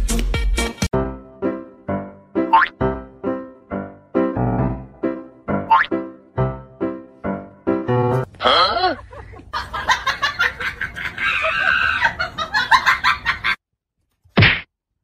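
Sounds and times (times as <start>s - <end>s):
comedy music: 0.0s - 8.8s
chicken-like clucking and squawks: 10.8s - 12.3s.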